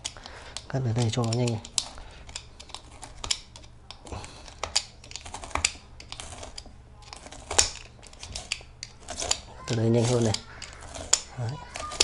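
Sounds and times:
knife cutting foam: 0.9s - 12.0s.

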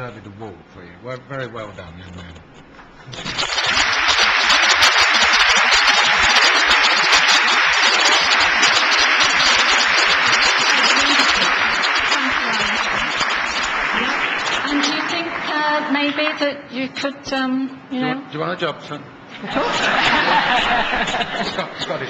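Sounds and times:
audience applauding: 3.0s - 16.5s, 19.6s - 22.0s.

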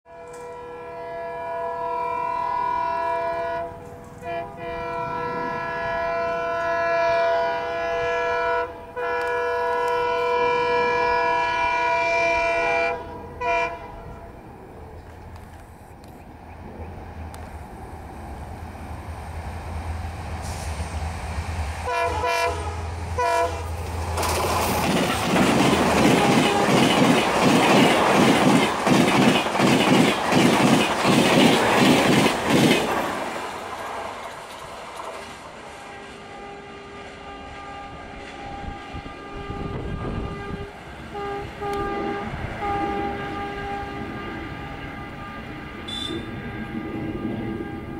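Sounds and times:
train horn blasts: 0.1s - 14.4s, 21.8s - 23.8s, 26.0s - 27.1s, 35.8s - 47.9s
train wheels clattering over joints: 23.8s - 35.5s.

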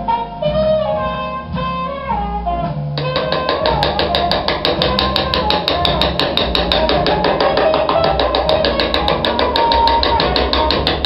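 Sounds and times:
hammer tapping chisel on steel: 3.0s - 11.0s.

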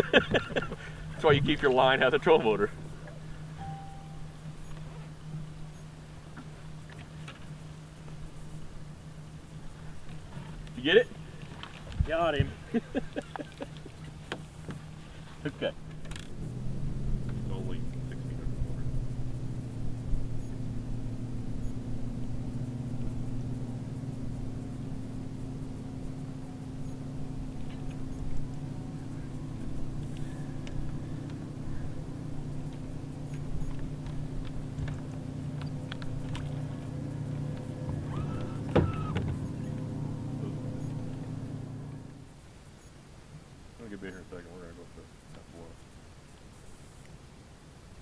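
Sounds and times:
electric motor humming: 26.5s - 42.2s
light clicks: 32.7s - 36.9s.

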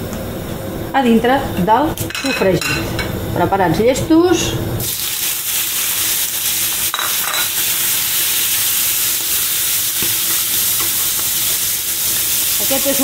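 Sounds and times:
squid sizzling in oil: 4.8s - 13.0s.

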